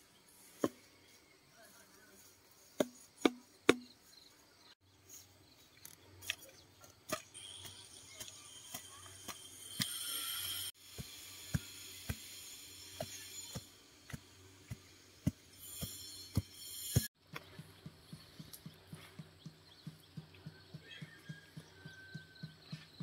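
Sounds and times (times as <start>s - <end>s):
bamboo stakes knocking: 2.8s - 4.0s.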